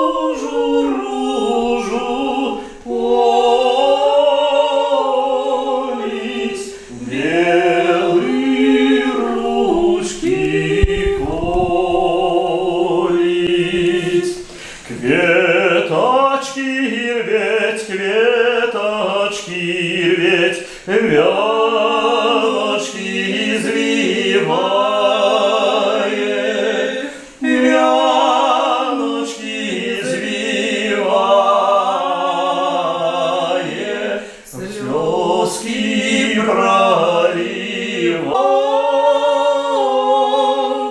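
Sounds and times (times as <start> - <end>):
man singing: 6.0 - 25.4
woman singing: 9.0 - 13.8.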